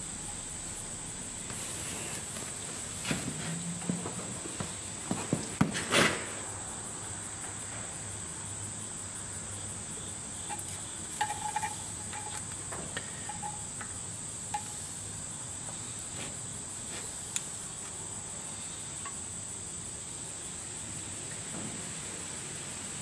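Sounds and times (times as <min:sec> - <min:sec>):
steady high-pitched drone: 0:00.0 - 0:02.4.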